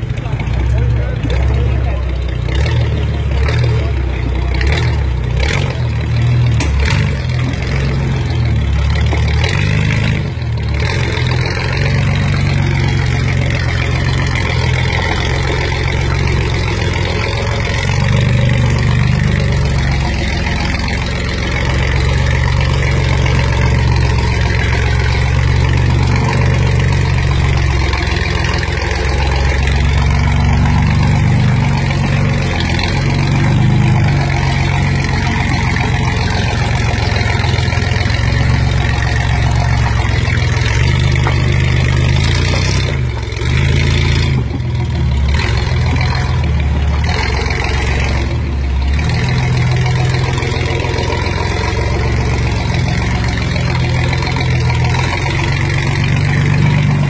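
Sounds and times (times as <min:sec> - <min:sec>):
truck engine under load: 0:00.0 - 0:57.0.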